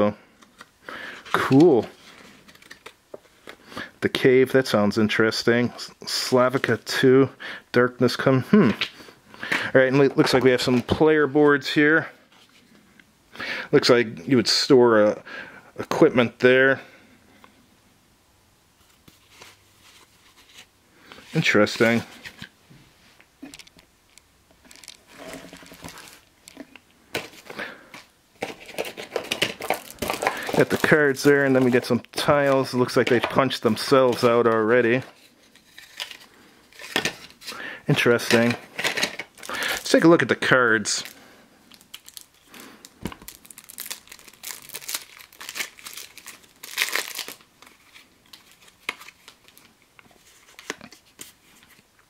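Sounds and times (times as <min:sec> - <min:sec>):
cardboard pieces rustling and clicking: 0:00.4 - 0:03.6, 0:24.6 - 0:40.0
plastic bags crinkling: 0:23.4 - 0:51.3.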